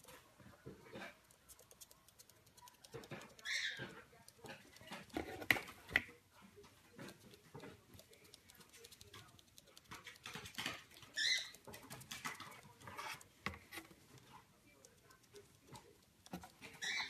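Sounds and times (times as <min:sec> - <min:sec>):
bird scratching and tapping: 0:00.0 - 0:17.0
bird squeak: 0:03.3 - 0:03.9, 0:11.1 - 0:11.6, 0:16.8 - 0:17.0.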